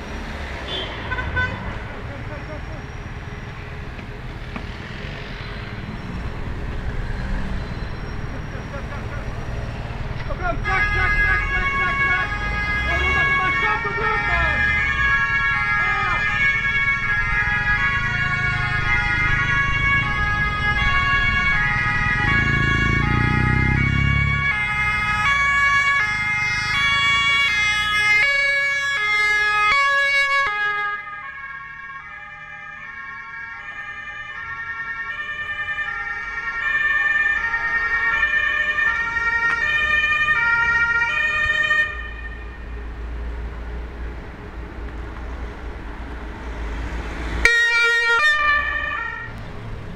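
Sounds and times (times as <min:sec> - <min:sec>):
engine rumble of passing vehicles: 0:00.0 - 0:49.9
two-tone emergency siren: 0:10.6 - 0:42.8, 0:47.2 - 0:49.4.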